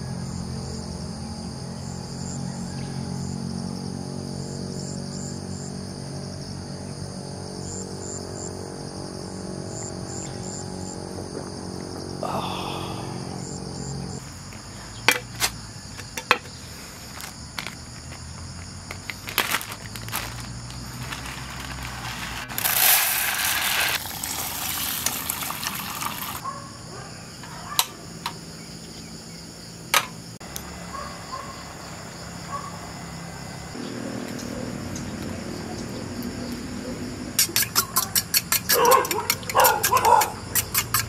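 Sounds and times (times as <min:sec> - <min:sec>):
crickets and insects chirping: 0:00.0 - 0:41.0.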